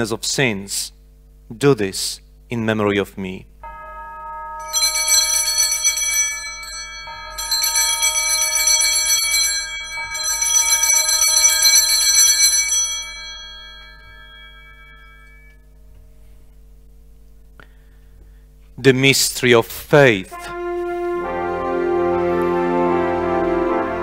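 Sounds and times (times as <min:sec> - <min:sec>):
altar bells jingling: 0:03.6 - 0:15.7.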